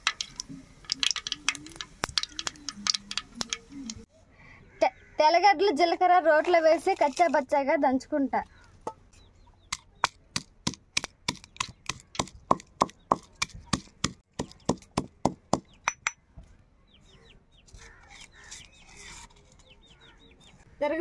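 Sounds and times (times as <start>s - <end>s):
pestle pounding in stone mortar: 10.0s - 16.2s.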